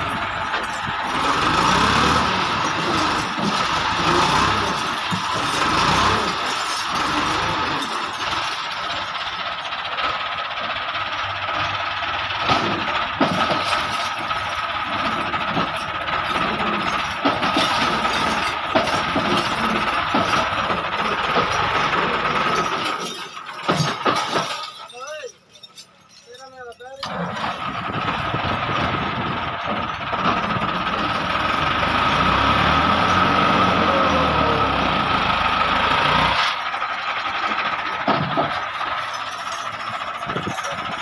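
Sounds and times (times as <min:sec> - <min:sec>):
tractor diesel engine straining: 0:00.0 - 0:41.0.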